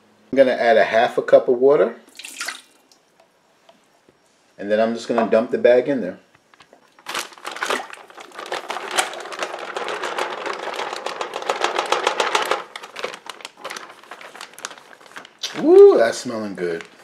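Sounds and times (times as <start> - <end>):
plastic bag crinkling: 6.5 - 17.0.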